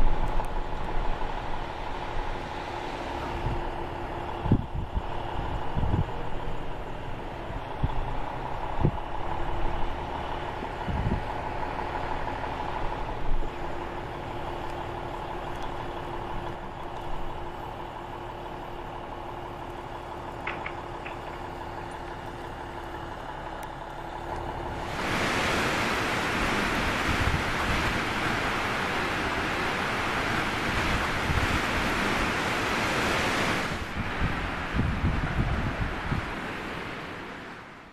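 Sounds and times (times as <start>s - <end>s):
loud rush of wind: 0.0s - 9.9s, 10.8s - 13.6s, 24.7s - 37.9s
crane engine droning: 0.0s - 37.9s.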